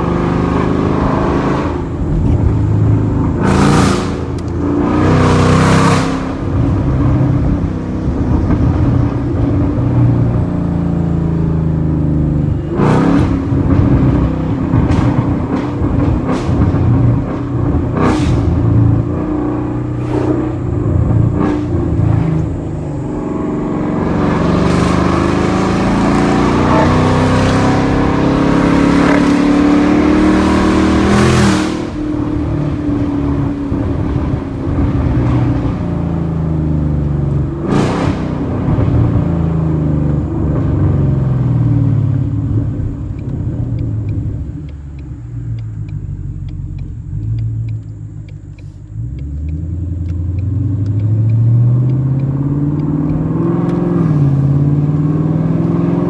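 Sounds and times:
car engine revving: 0.0 - 56.0
exhaust cracks: 12.7 - 26.8
rushing noise: 12.7 - 27.4.

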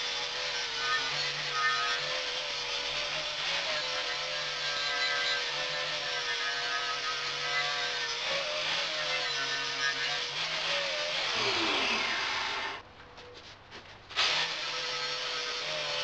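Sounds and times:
power tool motor whining: 0.0 - 12.8, 14.2 - 16.0.

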